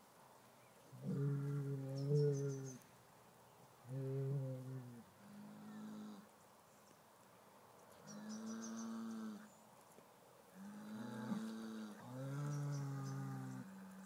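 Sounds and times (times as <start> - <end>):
bull mooing: 10.6 - 14.0.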